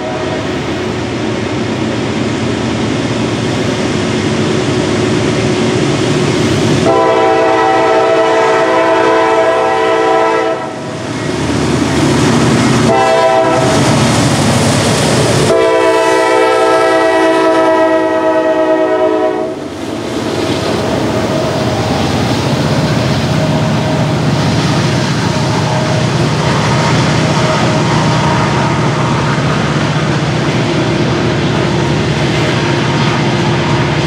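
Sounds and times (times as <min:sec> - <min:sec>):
locomotive air horn blasts: 0:00.0 - 0:00.5, 0:06.8 - 0:10.9, 0:12.8 - 0:13.8, 0:15.5 - 0:19.6, 0:25.6 - 0:29.4
train wheels on rails: 0:00.0 - 0:34.0.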